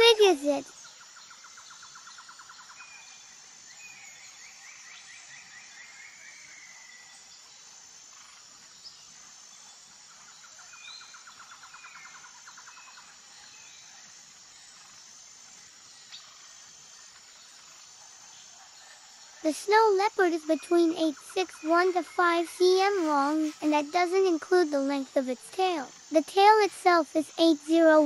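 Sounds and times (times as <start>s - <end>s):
high insect hiss: 0.0s - 28.0s
small birds chirping and trilling: 8.6s - 28.0s.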